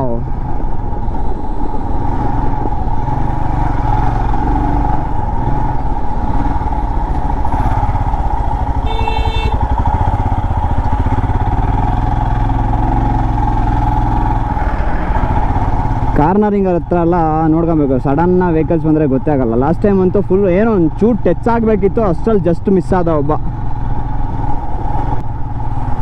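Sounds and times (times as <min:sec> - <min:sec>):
motorcycle engine running: 0:01.7 - 0:22.2
short horn beep: 0:08.9 - 0:09.6.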